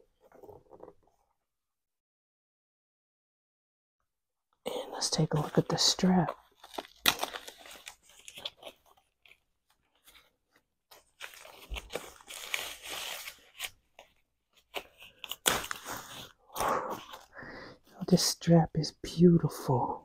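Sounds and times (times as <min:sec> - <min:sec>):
wrap rustling and tearing: 0:05.0 - 0:17.3
packaging wrap crackling: 0:05.2 - 0:10.3, 0:11.0 - 0:16.3.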